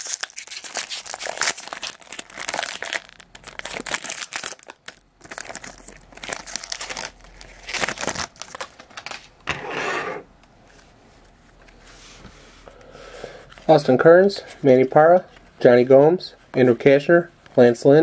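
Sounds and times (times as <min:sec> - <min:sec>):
foil wrapper crinkling: 0:00.0 - 0:09.3.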